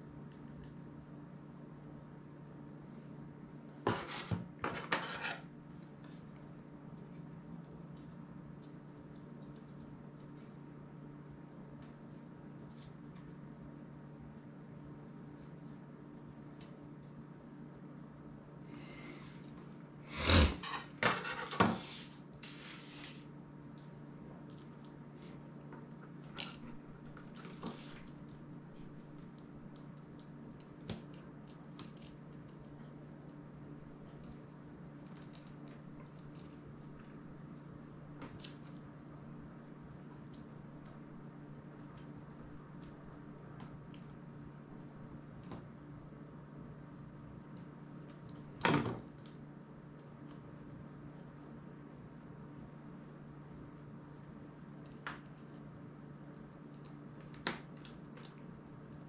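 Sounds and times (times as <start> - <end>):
steady low hum: 0.0 - 59.0
light clicks of small parts: 6.0 - 10.6, 11.8 - 13.4, 23.7 - 33.4, 42.7 - 44.2, 56.3 - 59.0.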